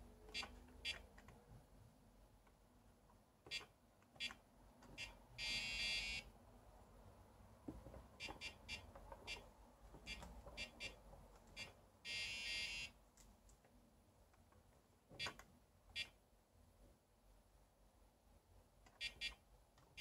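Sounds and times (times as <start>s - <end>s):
buzzer beeps: 0.3s - 1.0s, 5.0s - 6.3s, 8.2s - 9.5s, 10.1s - 11.0s, 11.6s - 12.9s, 19.0s - 19.4s.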